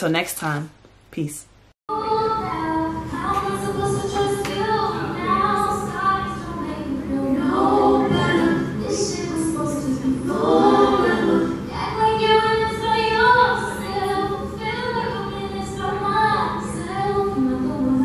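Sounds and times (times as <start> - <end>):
women singing in harmony: 1.9 - 18.0.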